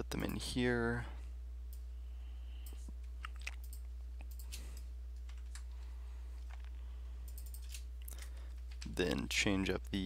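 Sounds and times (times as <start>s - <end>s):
low hum: 0.0s - 10.0s
computer keyboard keystrokes: 7.3s - 9.0s.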